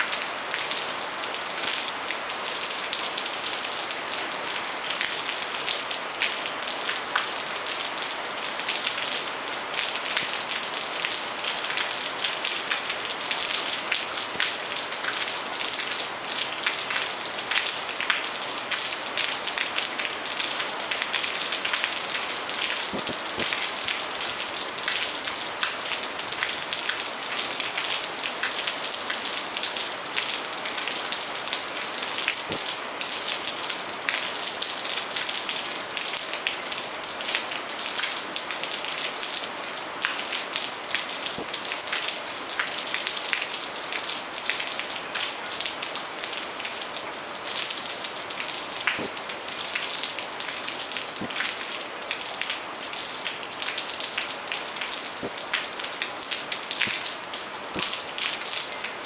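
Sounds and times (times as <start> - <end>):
rain hissing: 5.5 - 28.8, 40.1 - 42.3, 48.2 - 52.8, 54.3 - 59.0.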